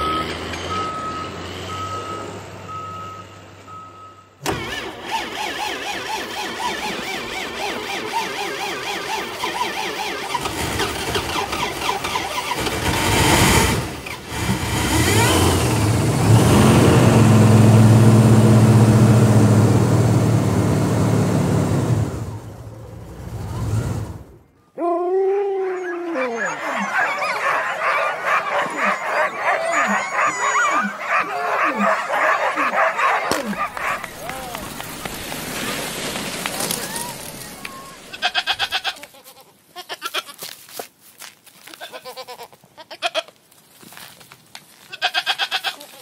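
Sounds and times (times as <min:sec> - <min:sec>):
vehicle engine running: 0:10.4 - 0:24.5
sled dogs howling and yipping: 0:24.8 - 0:38.3.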